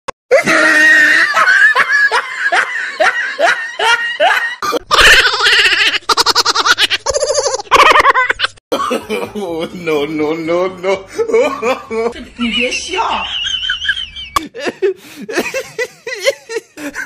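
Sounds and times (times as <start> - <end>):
falling ha laughs: 0.3 - 9.2.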